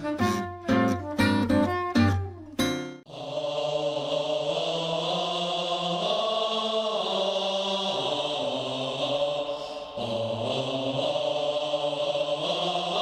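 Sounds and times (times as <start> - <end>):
chant-like held tones music: 3.1 - 13.0.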